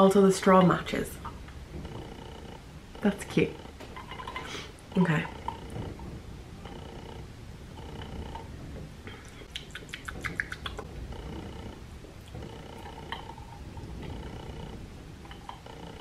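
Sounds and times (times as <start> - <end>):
faint purring hum: 0.0 - 16.0
mouth clicks and lip smacks: 9.1 - 10.9.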